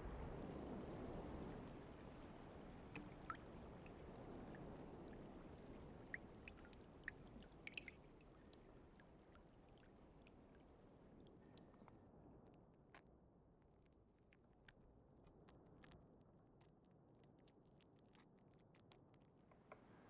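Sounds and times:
water drops dripping: 6.0s - 11.9s.

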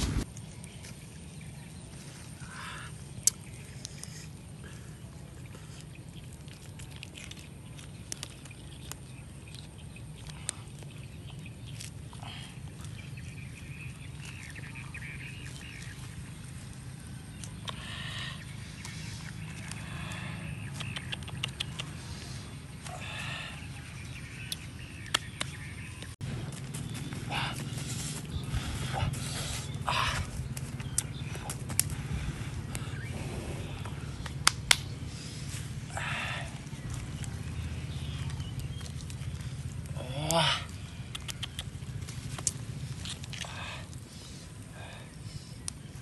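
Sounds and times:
low outdoor rumble: 0.0s - 46.0s
sharp clicks: 20.7s - 22.0s, 41.1s - 42.6s.

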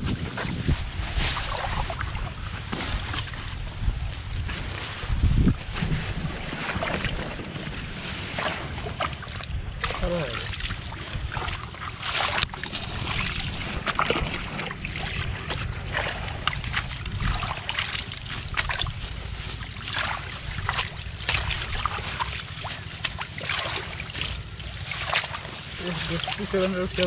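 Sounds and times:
wind rumble on microphone: 0.0s - 23.3s
hands splashing in muddy water: 8.2s - 27.0s.

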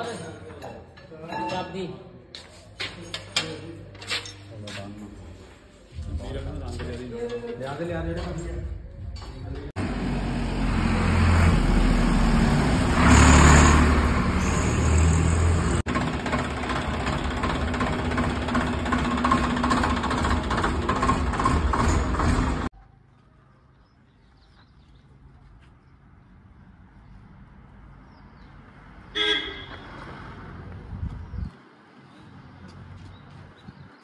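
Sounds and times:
tractor diesel engine running: 9.8s - 22.7s.

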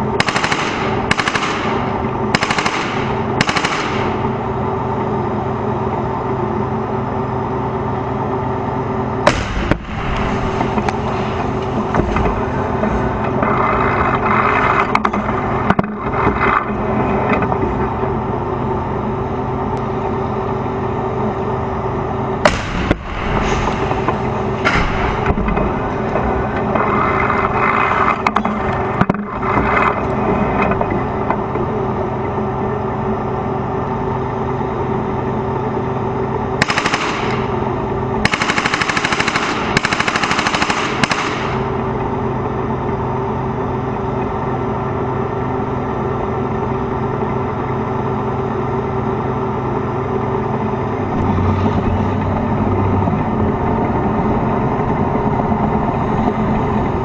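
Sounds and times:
tank diesel engine running: 0.0s - 57.0s
machine-gun fire: 0.2s - 4.4s, 9.3s - 10.7s, 22.4s - 23.9s, 36.6s - 37.6s, 38.2s - 41.8s.

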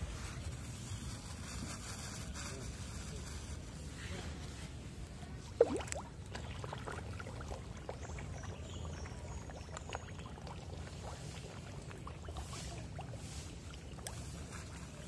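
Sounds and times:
fish splashing at water surface: 5.4s - 15.0s.

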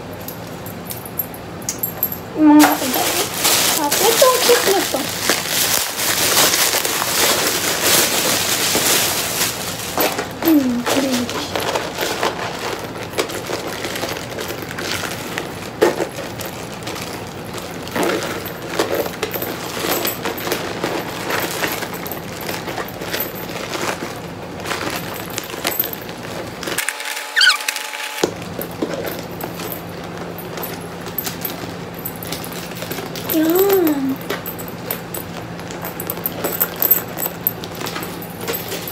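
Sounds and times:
metal chain and beads clinking: 0.0s - 14.6s, 16.2s - 26.2s, 28.6s - 38.9s
bag rustling: 2.6s - 26.5s.

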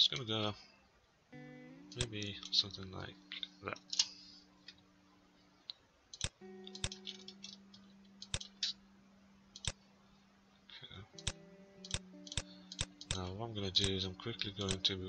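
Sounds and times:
faint low hum: 0.0s - 15.0s
mouse and keyboard clicks: 6.2s - 7.6s, 8.2s - 8.8s, 11.2s - 14.0s.

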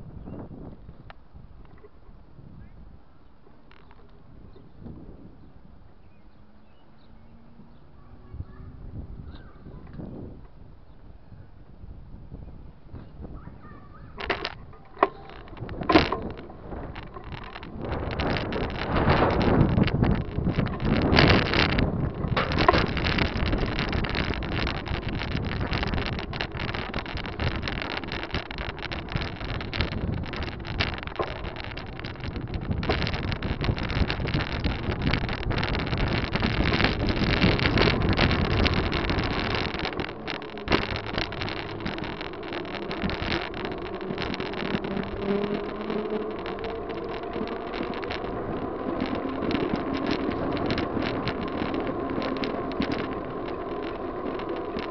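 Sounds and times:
wind buffeting microphone: 0.0s - 54.9s
bicycle rattling and knocking: 13.0s - 54.9s.

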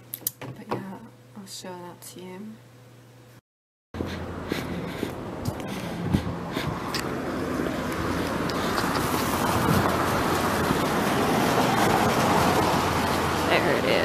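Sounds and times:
wind: 4.0s - 14.0s.

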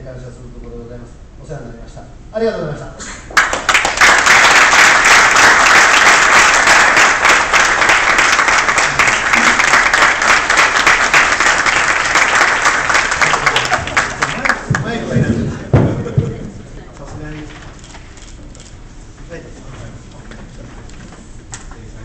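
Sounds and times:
audience applauding: 3.3s - 15.2s.

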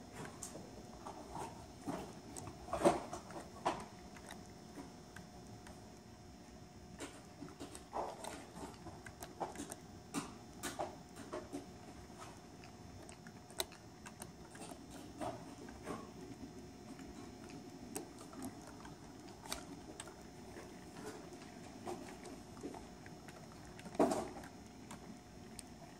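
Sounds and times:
faint steady hum: 0.0s - 25.9s.

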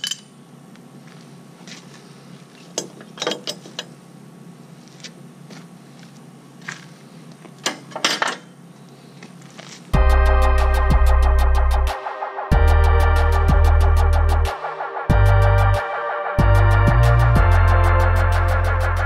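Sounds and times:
low steady hum: 0.0s - 19.0s
loud electronic music: 10.0s - 19.0s.

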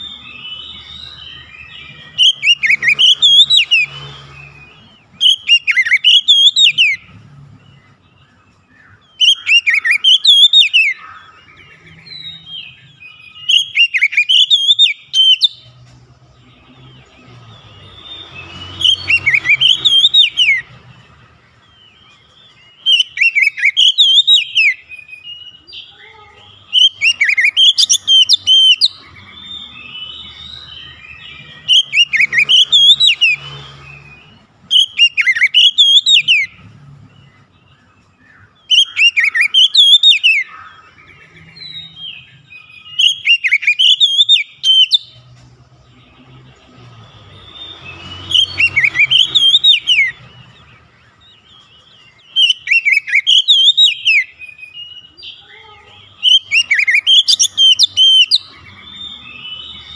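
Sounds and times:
bird whistling song: 0.0s - 59.9s
bird chattering: 25.7s - 33.4s, 47.6s - 59.9s.

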